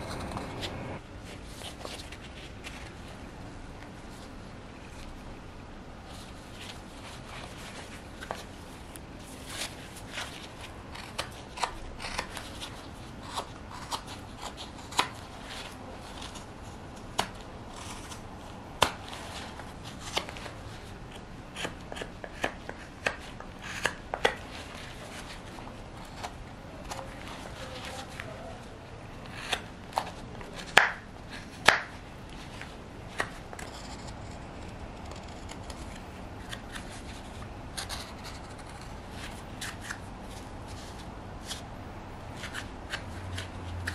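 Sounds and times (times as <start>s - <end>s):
knife carving wood: 9.4s - 28.2s, 29.2s - 41.7s.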